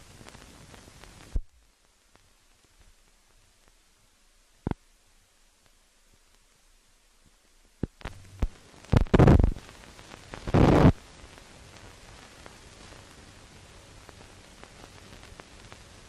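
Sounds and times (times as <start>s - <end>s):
film soundtrack hiss and crackle: 0.0s - 16.0s
loud bursts of noise: 8.0s - 9.6s.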